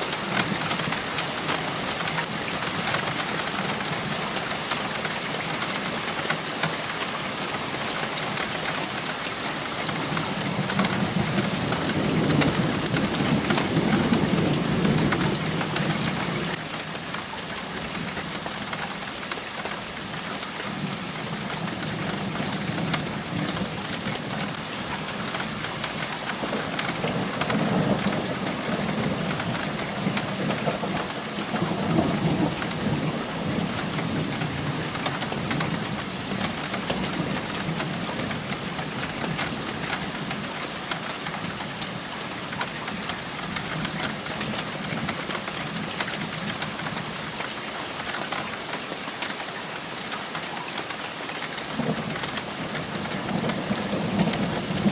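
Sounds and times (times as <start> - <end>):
rain hissing and pattering: 0.0 - 54.9
thunder rumbling: 51.8 - 54.9.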